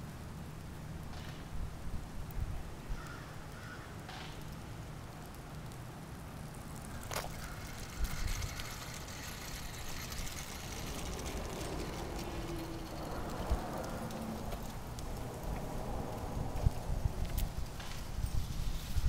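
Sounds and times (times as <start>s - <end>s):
low rumble: 9.6s - 17.8s.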